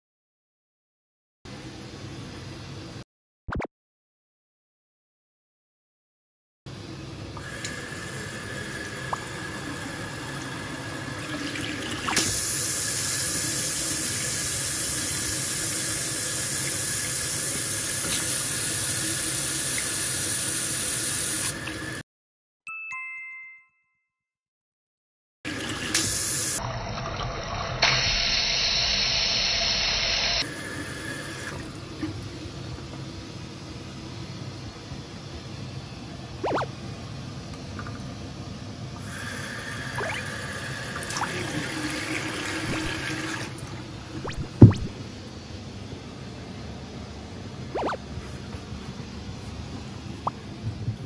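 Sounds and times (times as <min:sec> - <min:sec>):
short chime: 0:22.7 - 0:24.2.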